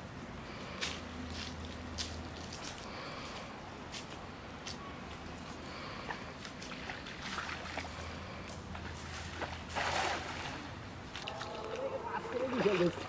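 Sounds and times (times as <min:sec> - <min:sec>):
pond water splashing and sloshing: 0:00.0 - 0:13.0
loud water splash: 0:09.7 - 0:11.5.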